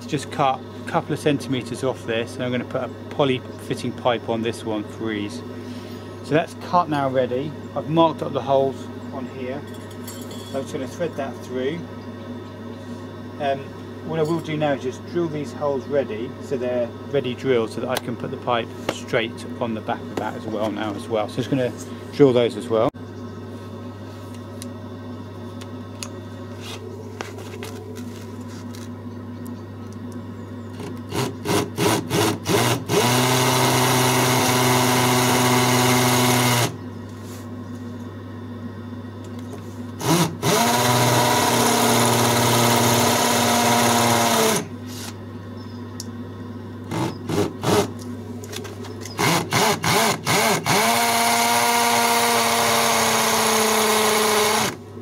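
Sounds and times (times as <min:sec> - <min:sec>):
cordless drill running: 0:30.8 - 0:36.8, 0:40.0 - 0:44.8, 0:46.9 - 0:48.0, 0:49.2 - 0:54.8.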